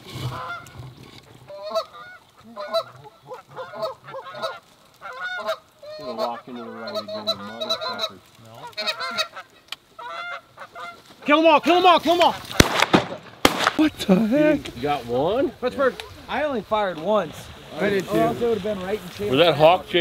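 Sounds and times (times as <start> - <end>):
geese honking: 0.2 - 0.8, 1.4 - 12.7.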